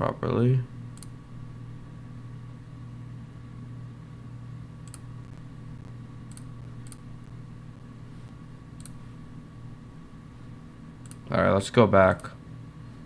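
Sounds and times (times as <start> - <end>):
steady low hum: 0.0 - 13.0
sharp computer clicks: 0.9 - 1.2, 4.8 - 5.4, 6.2 - 7.1, 8.8 - 9.0, 11.0 - 11.4, 12.0 - 12.4.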